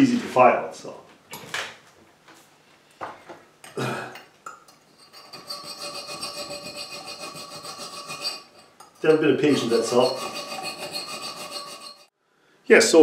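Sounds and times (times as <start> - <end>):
file rasping on metal: 5.0 - 12.1.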